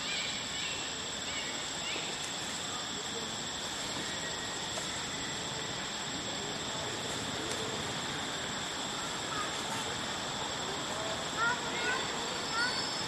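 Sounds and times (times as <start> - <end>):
background hiss: 0.0 - 13.0
faint chirping squeaks: 11.4 - 13.0.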